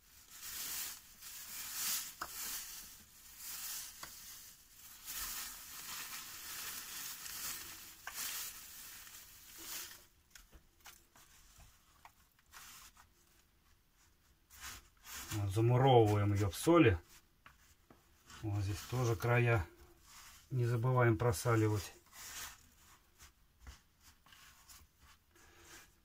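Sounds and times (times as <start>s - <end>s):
salt grains pouring: 0.0s - 10.1s
plastic bag crinkling: 0.0s - 11.1s
rustles and taps on meat: 2.2s - 2.6s, 10.3s - 13.8s, 22.9s - 25.2s.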